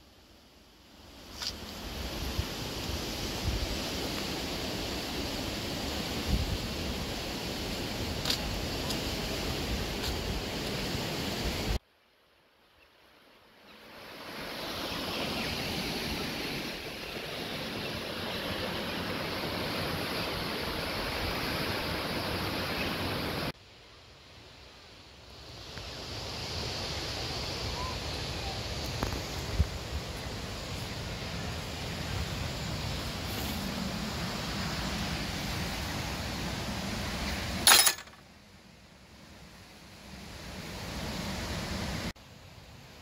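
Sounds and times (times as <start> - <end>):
river rushing through rapids: 13.9 - 23.6.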